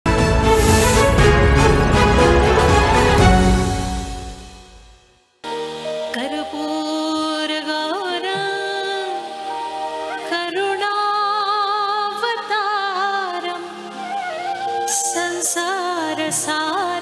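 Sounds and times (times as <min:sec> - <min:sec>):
woman singing a hymn: 0:06.0 - 0:14.0, 0:14.8 - 0:17.0.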